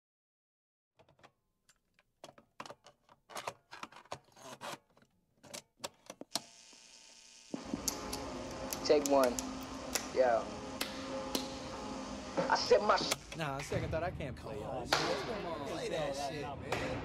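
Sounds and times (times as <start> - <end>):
irregular sharp clicks: 7.8 - 10.1.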